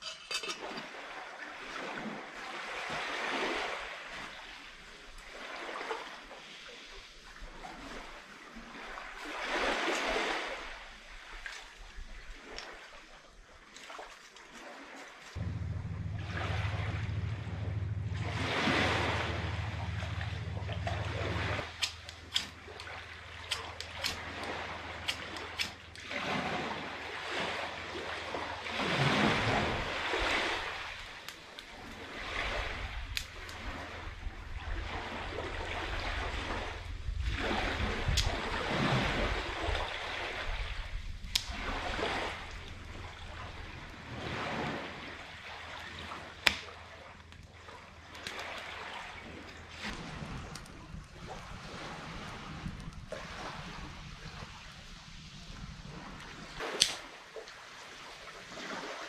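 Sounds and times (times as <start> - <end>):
small waves washing on sand: 0.6 - 17.4, 18.0 - 59.0
campfire sticks snapping: 21.6 - 26.1, 33.1 - 33.6, 41.2 - 41.6, 46.4 - 47.5, 48.1 - 48.6, 56.6 - 57.1.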